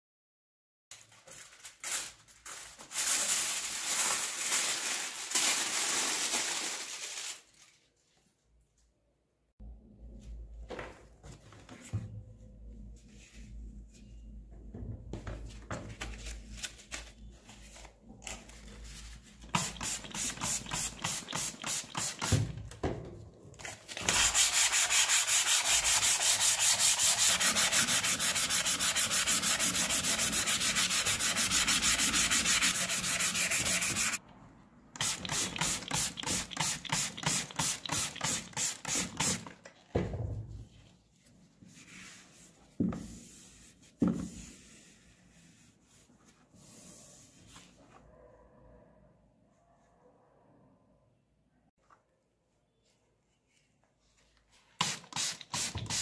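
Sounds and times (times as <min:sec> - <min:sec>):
sandpaper scraping metal tube: 0:24.0 - 0:34.2.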